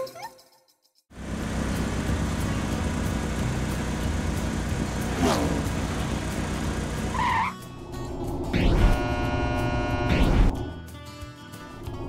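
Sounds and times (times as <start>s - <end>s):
cartoon car engine: 1.2s - 7.6s.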